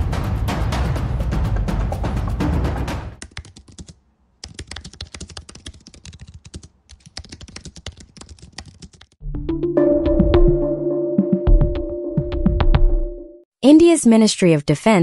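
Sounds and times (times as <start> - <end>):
music: 0.0 - 3.2, 9.2 - 13.5
rapid keyboard typing: 3.2 - 9.2.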